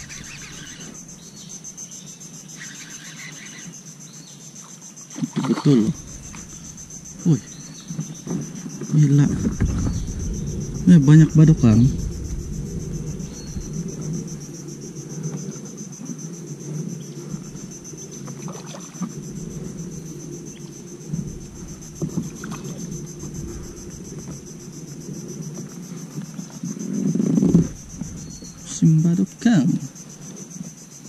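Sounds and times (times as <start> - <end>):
insects buzzing: 0.0 - 31.0
low rumble: 5.7 - 29.0.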